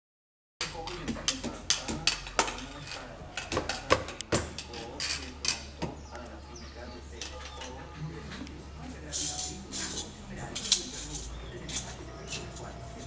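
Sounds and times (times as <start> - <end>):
plastic toy tapping and scraping: 0.6 - 6.0.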